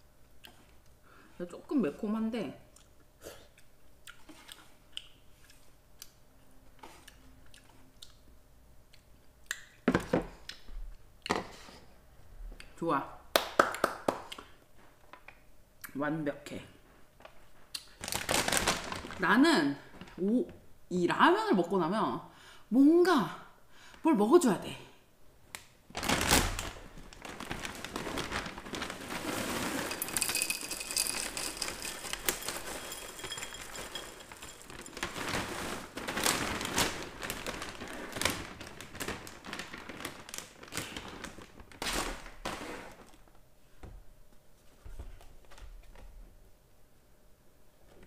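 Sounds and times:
plastic bag crinkling: 18.0s - 19.3s, 25.9s - 43.2s
dry cereal rattling into bowl: 27.2s - 40.2s.

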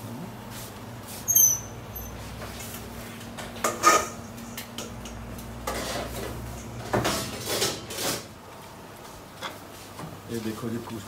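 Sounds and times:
metal utensils and pans clattering: 3.6s - 4.9s, 5.6s - 8.3s.

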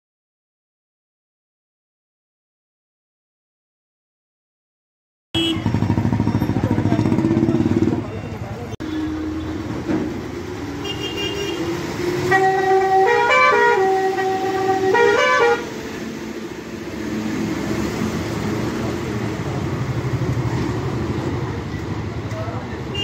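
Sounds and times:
multi-tone bus horn: 5.4s - 5.9s, 10.8s - 15.9s
bus engine running: 5.4s - 22.9s.

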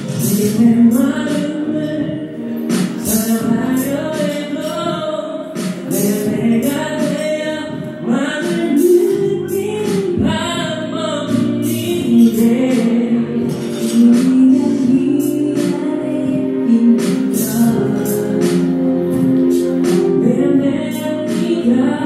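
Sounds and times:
instrumental accompaniment: 0.0s - 22.0s
man singing: 0.0s - 22.0s
woman singing: 0.0s - 22.0s.

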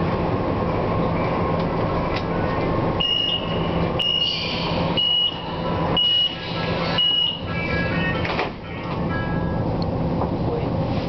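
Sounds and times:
low train hum: 0.0s - 11.0s
door warning beeps: 5.0s - 6.4s, 7.0s - 7.5s.

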